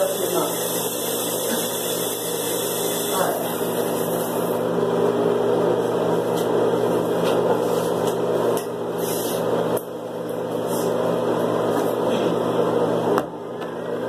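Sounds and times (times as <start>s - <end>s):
small motor humming and whirring: 0.0s - 4.7s.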